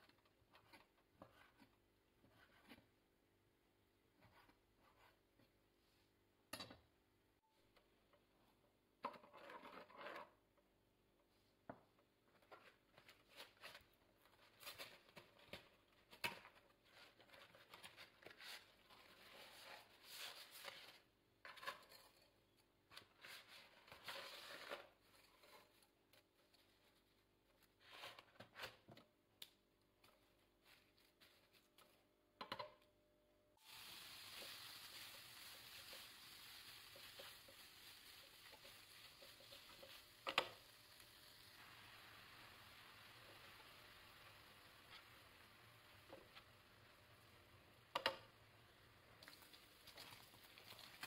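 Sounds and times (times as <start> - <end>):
bacon sizzling in a pan: 33.6 - 48.2
boiling water: 33.6 - 51.0
spoon scraping and tapping a pot: 38.5 - 40.6.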